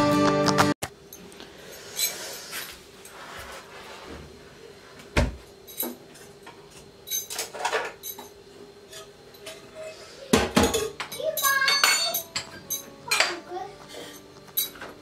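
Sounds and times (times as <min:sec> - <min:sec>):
kitchen clinks and knocks: 0:05.7 - 0:09.6, 0:10.4 - 0:13.4, 0:14.5 - 0:15.0.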